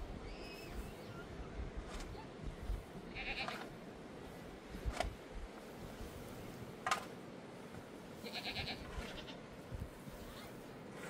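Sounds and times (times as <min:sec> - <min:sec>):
livestock bleating: 0:03.1 - 0:03.7, 0:08.2 - 0:09.4.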